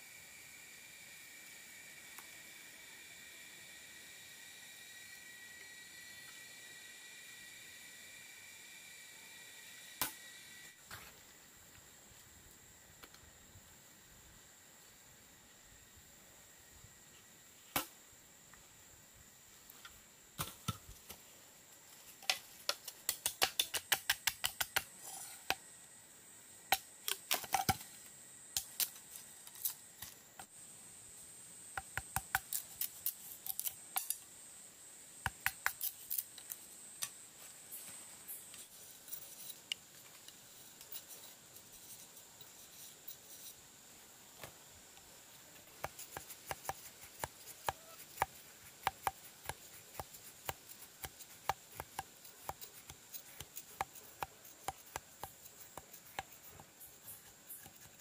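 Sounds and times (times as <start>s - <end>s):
knife scraping bamboo: 22.2s - 25.6s, 32.2s - 34.2s, 35.4s - 36.6s, 45.8s - 58.0s.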